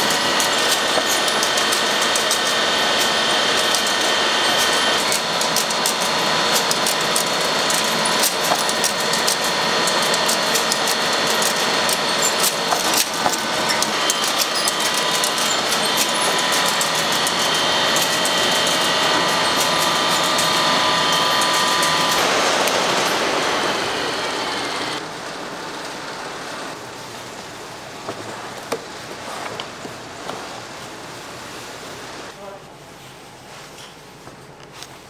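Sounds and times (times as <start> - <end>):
rapid machinery clicks: 0.0 - 25.0
machinery high whine: 0.0 - 27.1.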